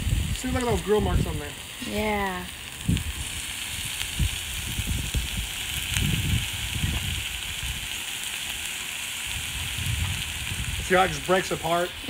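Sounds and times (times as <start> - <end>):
potatoes sizzling on griddle: 0.0 - 12.0
low thumps and rumbles: 4.1 - 7.8, 9.4 - 10.9.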